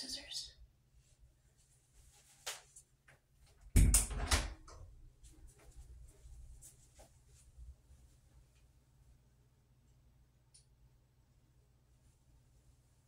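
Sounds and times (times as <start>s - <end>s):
faint footsteps walking: 5.1s - 8.8s.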